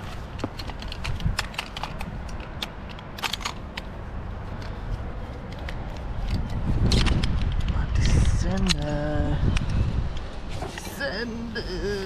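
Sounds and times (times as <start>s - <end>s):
sharp clicks and knocks: 4.6s - 10.8s.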